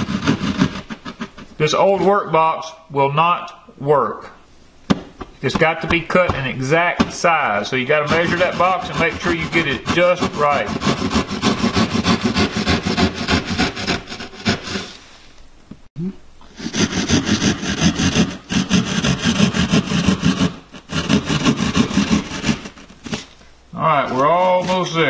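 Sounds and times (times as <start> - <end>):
hand saw cutting through drywall: 0.0 - 1.6, 5.6 - 15.0, 16.6 - 23.3, 24.1 - 25.0.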